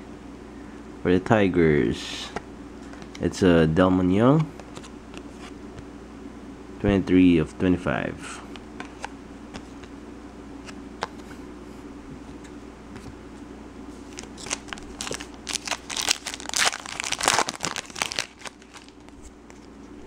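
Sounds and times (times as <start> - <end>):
low room hum: 0.0 - 20.0
wrapper crinkling and tearing: 14.0 - 19.7.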